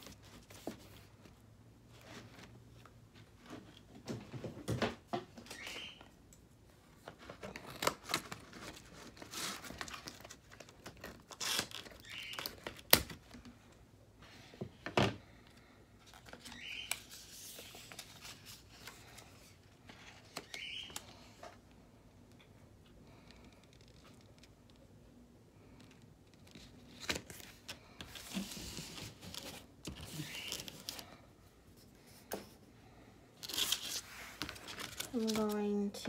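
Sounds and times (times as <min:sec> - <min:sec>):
vinyl rustling and crinkling: 0:06.9 - 0:13.8, 0:25.6 - 0:31.2, 0:33.4 - 0:35.9.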